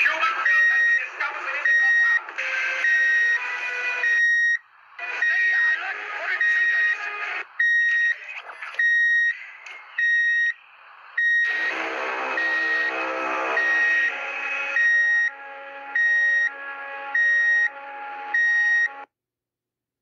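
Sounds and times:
mix of background audio: 0.0s - 19.1s
electronic alarm beeping: 0.4s - 2.2s, 2.8s - 4.6s, 5.2s - 5.8s, 6.4s - 7.0s, 7.6s - 8.2s, 8.8s - 9.4s, 10.0s - 10.6s, 11.2s - 15.4s, 16.0s - 19.1s.

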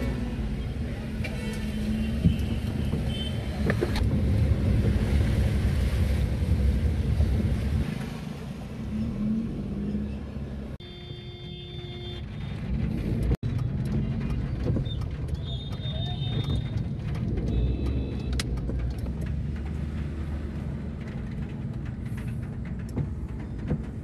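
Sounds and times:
traffic rumble: 0.0s - 24.0s.

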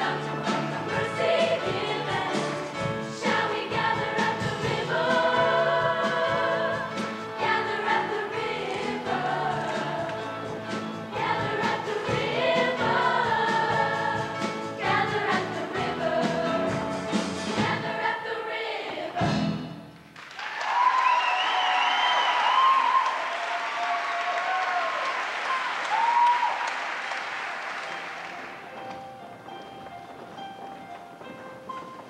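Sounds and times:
choir singing: 0.0s - 19.7s.

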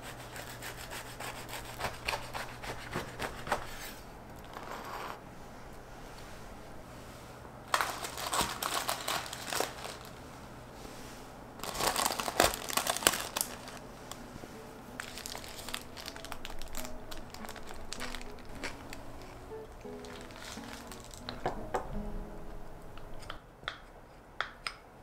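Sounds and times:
paper wrapper crinkling: 7.7s - 10.2s, 11.6s - 21.6s.

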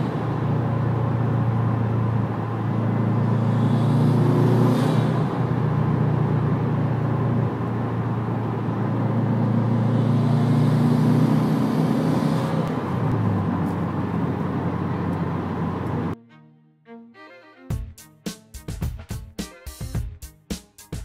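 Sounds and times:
car engine accelerating: 0.0s - 16.2s.

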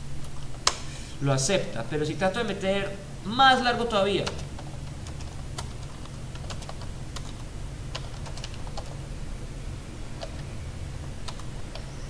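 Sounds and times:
steady low hum: 0.0s - 12.0s
computer keyboard typing: 4.2s - 9.0s, 10.2s - 10.5s, 11.1s - 12.0s.

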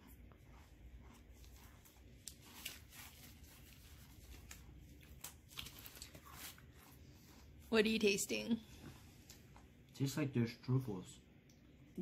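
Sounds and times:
chewing crisp food: 0.0s - 7.7s
low room hum: 0.0s - 12.0s.

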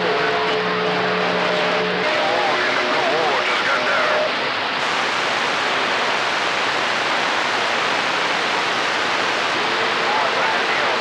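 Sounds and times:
radio static hiss: 0.0s - 11.0s.

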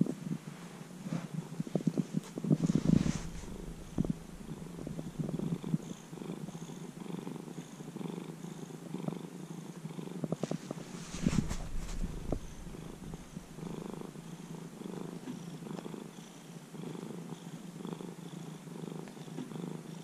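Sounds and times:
rustling brushing sounds: 0.0s - 6.8s, 10.4s - 15.0s
cat purring: 0.0s - 20.0s.

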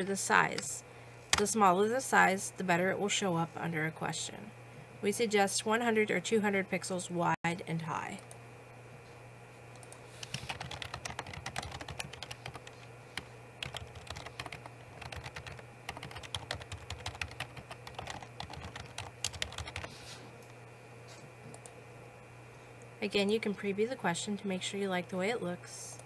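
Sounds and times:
typing on a keyboard: 10.2s - 12.8s, 13.6s - 19.9s.

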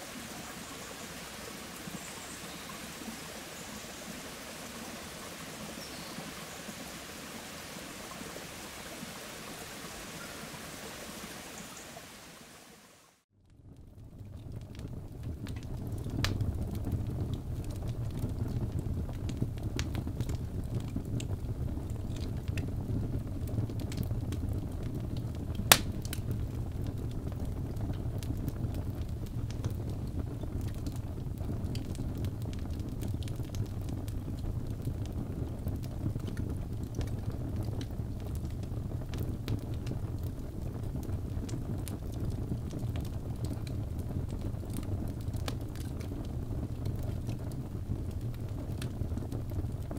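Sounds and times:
crackles from burning logs: 0.0s - 9.6s, 13.4s - 49.9s
wood fire burning: 0.0s - 11.3s, 13.4s - 49.9s
loud pop from fire: 25.7s - 26.2s.

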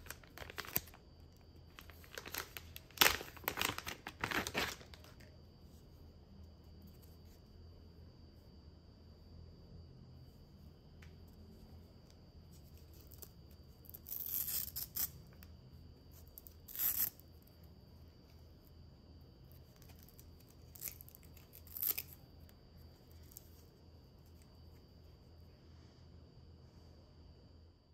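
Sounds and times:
velcro tape ripping: 14.0s - 15.2s, 16.4s - 17.2s, 19.9s - 22.2s.

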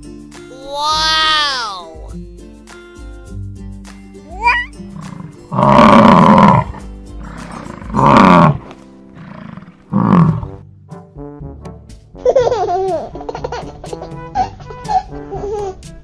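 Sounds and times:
background music: 0.0s - 16.0s
buffalo bellowing: 4.4s - 10.6s.

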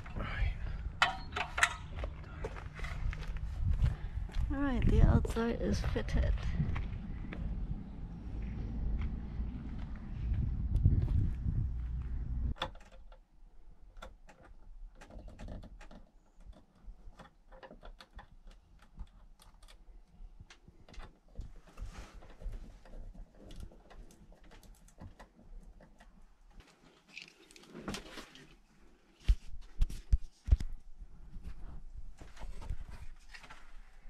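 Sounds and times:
wind rumble on microphone: 2.7s - 12.6s
plastic parts clicking and tapping: 12.6s - 26.2s.

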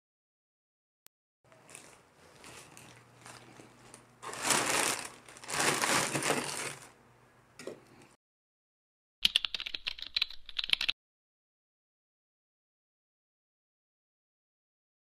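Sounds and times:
plastic mailer pouch crinkling: 1.6s - 7.0s
keyboard typing clicks: 9.2s - 11.0s.

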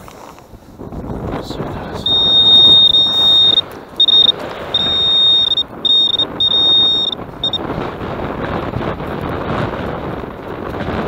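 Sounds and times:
metal detector alert tone: 2.0s - 7.6s.

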